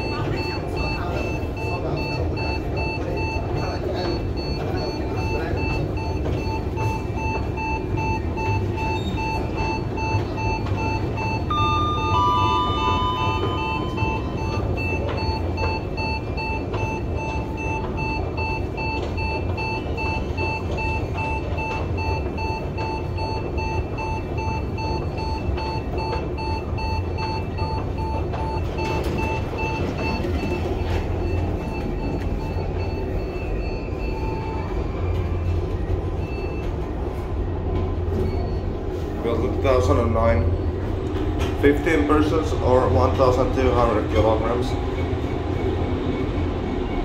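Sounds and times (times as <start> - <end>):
elevator warning beeps: 0.0 - 47.0
low elevator rumble: 0.0 - 47.0
two-note chime: 11.5 - 14.4.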